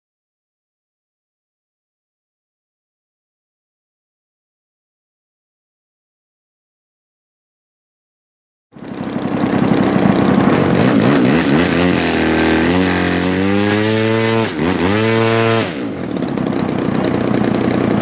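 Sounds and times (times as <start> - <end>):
model plane engine and propeller: 8.8 - 18.0.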